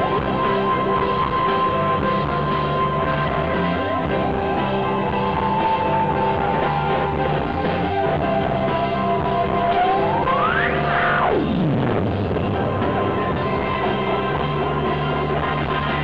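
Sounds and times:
bass guitar: 0.0s - 16.0s
drums: 0.0s - 16.0s
electronic rock band playing: 0.0s - 16.0s.

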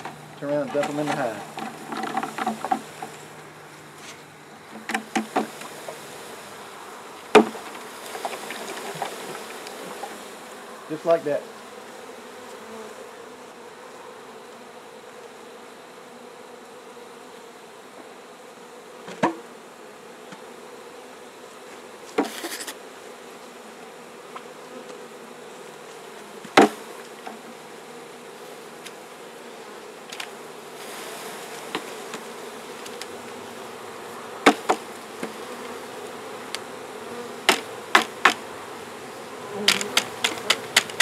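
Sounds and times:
honeybees buzzing: 0.0s - 41.0s
loud sharp knocks: 7.3s - 7.7s, 26.6s - 26.8s, 34.4s - 35.3s, 37.5s - 38.4s.

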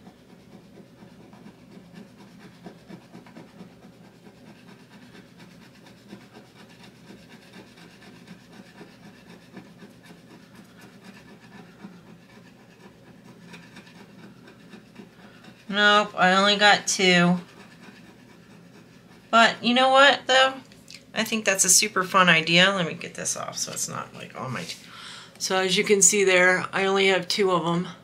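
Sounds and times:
metal tool scratching card: 0.0s - 19.5s.

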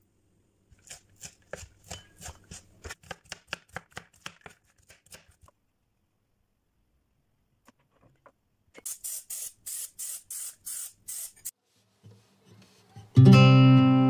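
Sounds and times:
cooking spray hissing: 8.8s - 11.6s
guitar music: 13.0s - 14.0s.

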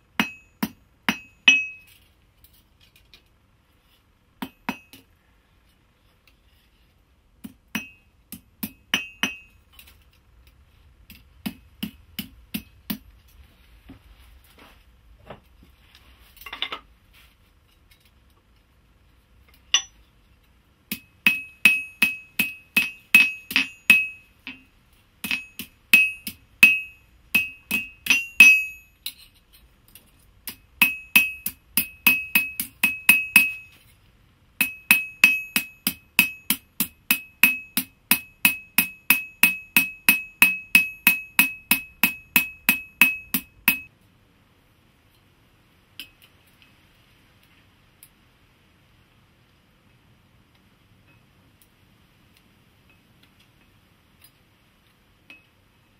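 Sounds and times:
hammer striking metal on anvil: 0.1s - 1.9s, 4.4s - 5.1s, 7.4s - 9.6s, 19.7s - 20.0s, 20.9s - 29.2s, 30.4s - 33.8s, 34.6s - 43.9s.

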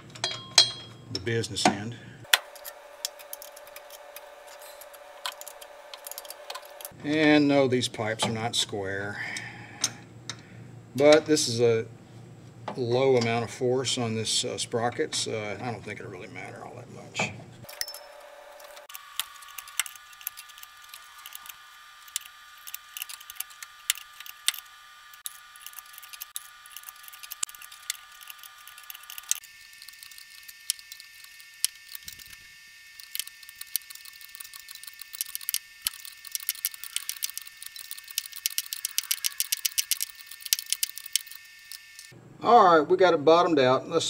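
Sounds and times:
ratchet clicking: 18.8s - 42.2s.

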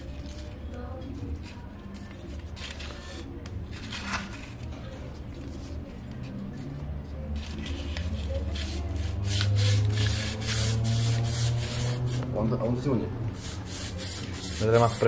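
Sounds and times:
sandpaper and cord rustling: 7.3s - 15.0s.

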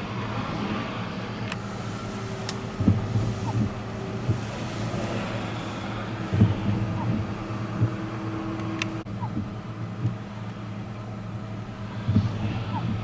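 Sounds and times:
vehicle engine humming: 0.0s - 13.0s
dull thumps: 2.4s - 10.2s, 12.0s - 13.0s.

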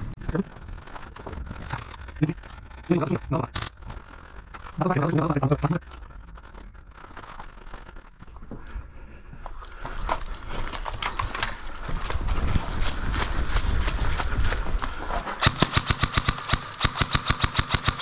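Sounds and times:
footsteps crunching on rubble: 3.5s - 15.4s
airsoft rifle full-auto bursts: 15.4s - 18.0s.

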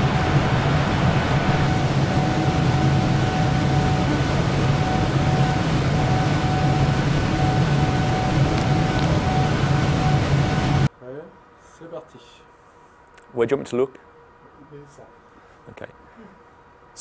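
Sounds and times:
low hum: 0.0s - 10.9s
faint steady whine: 0.0s - 17.0s
server cooling fans rushing: 0.0s - 17.0s.

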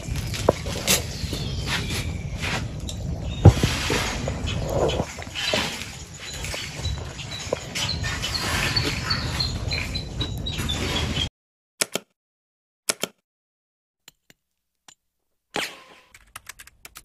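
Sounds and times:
outdoor ambience: 0.0s - 11.3s
sharp clicks: 11.8s - 12.1s, 12.9s - 13.2s.

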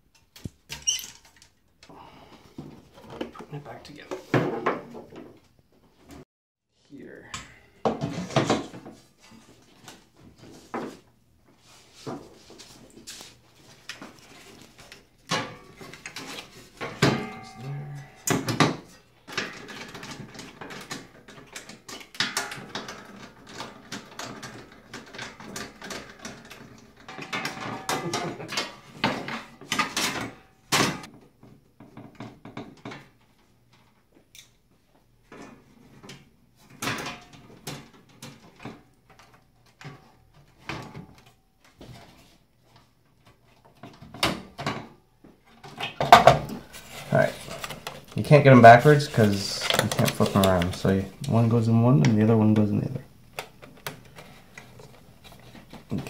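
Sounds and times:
clicks and knocks of metal parts: 49.1s - 51.3s.

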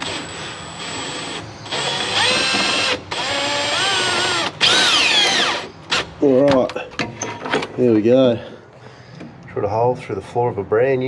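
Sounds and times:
cordless drill whining: 0.0s - 6.1s.

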